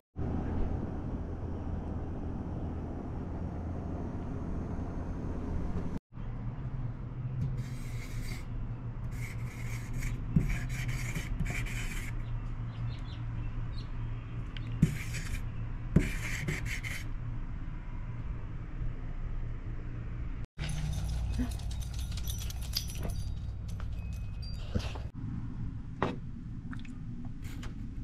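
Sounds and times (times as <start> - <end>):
marker rubbing across tabletop: 7.4 - 8.5, 9.1 - 12.3, 14.8 - 15.4, 16.0 - 17.1.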